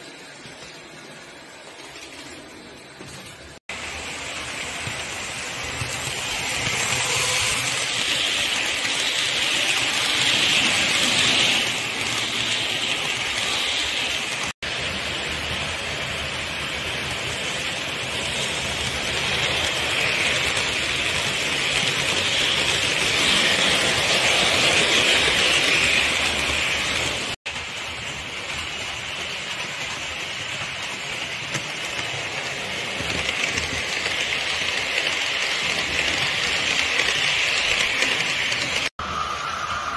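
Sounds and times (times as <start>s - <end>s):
model trains whirring on track: 0.0s - 39.9s.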